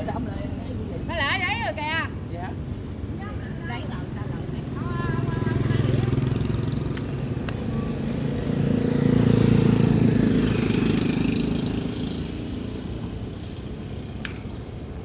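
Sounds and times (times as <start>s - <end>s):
motorbike passing by: 3.1s - 15.0s.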